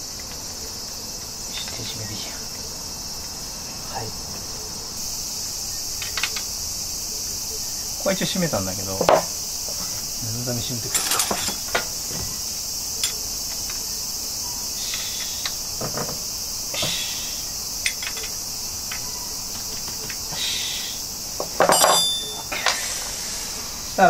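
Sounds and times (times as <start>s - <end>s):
high-pitched insect chorus: 0.0s - 24.0s
light clicks and knocks: 1.2s - 2.0s, 15.0s - 17.0s, 17.8s - 20.3s.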